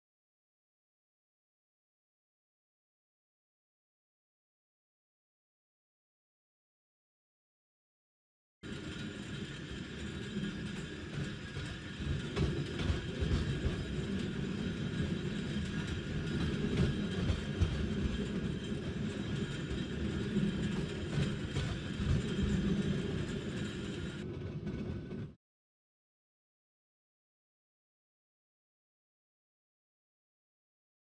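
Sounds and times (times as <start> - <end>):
tram rumbling along rails: 8.6 - 25.4.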